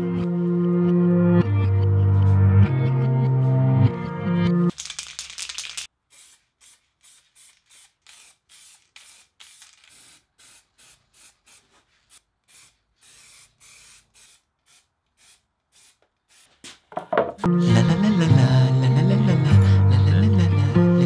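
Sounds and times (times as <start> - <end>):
spray paint can hissing: 4.7 - 16.7.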